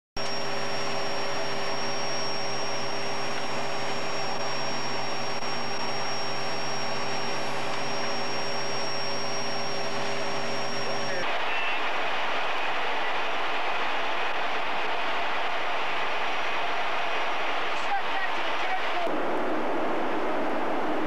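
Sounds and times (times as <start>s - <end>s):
jet engines roaring: 0.2s - 13.6s
thin high whine: 0.2s - 21.0s.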